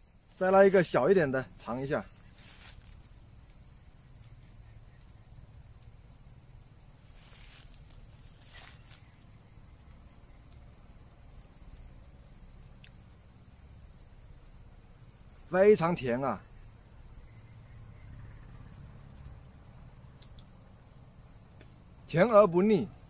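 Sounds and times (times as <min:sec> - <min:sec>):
insects chirping: 0:00.0 - 0:23.0
hands peeling fruit rustles: 0:01.9 - 0:05.2, 0:07.0 - 0:09.4.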